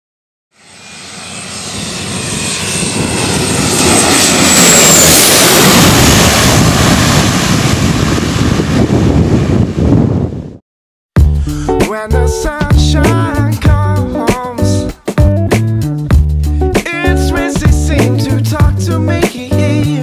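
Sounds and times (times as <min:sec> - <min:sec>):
propeller plane passing overhead: 0:00.5 - 0:10.4
high whine dropping in pitch: 0:00.5 - 0:10.6.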